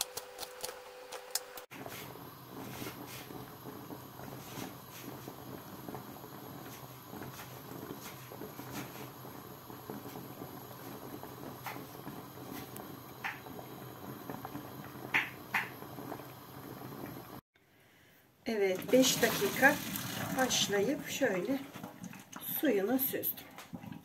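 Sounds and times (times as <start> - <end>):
pot of water heating hiss: 1.7 - 17.4, 18.6 - 21.6
bubbles ticking and popping: 2.5 - 17.4, 18.8 - 24.0.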